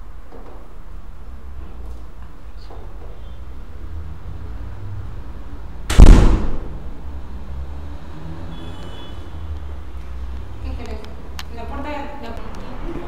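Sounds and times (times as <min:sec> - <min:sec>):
wooden door slamming: 0:05.9 - 0:06.7.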